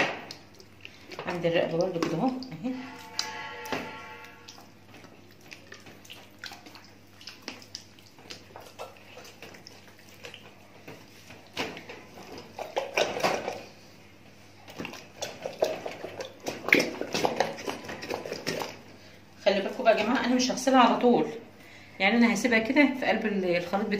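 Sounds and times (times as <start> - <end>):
wet squelching and slapping: 0.0 - 3.4, 4.2 - 13.7, 14.6 - 18.9.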